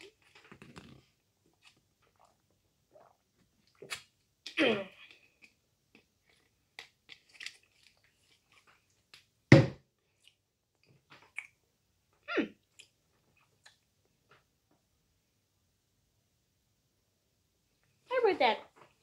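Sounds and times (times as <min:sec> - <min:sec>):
person chewing cookie: 0:00.0 - 0:04.1, 0:05.1 - 0:09.3, 0:10.1 - 0:11.6, 0:12.6 - 0:13.9.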